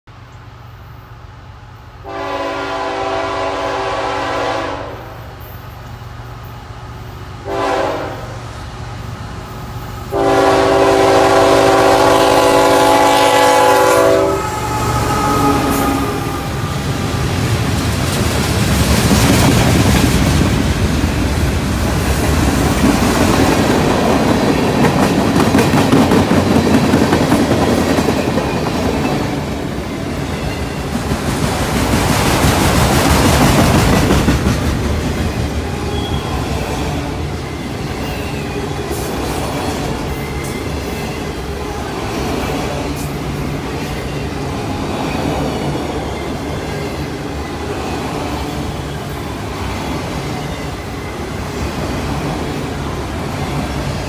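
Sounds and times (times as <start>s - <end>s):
freight train wheels rumbling on rails: 0.2s - 54.0s
locomotive air horn blowing: 2.0s - 5.2s, 7.4s - 8.4s, 10.1s - 17.0s.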